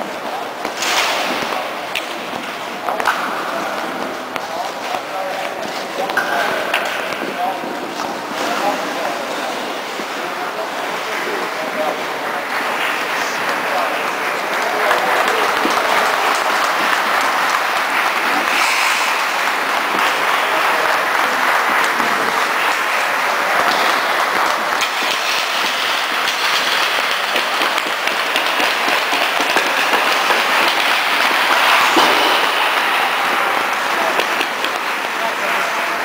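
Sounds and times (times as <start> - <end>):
spectators clapping: 10.0 - 36.0.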